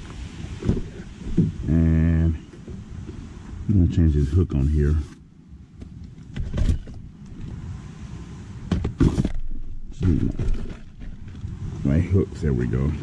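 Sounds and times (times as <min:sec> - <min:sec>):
fishing rods and bucket clattering: 0:08.9 - 0:11.6.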